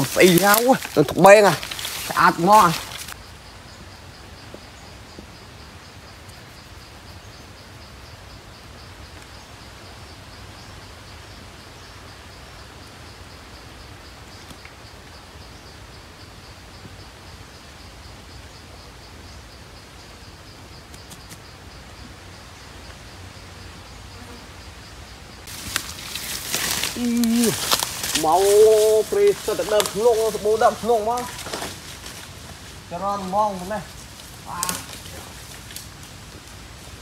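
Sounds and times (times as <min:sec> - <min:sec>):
insect trilling: 0:00.0 - 0:37.0.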